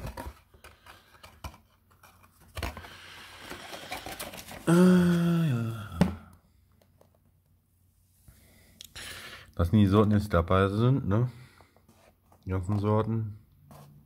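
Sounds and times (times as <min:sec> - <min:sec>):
packaging rustling and clicking: 0:00.0 - 0:04.7.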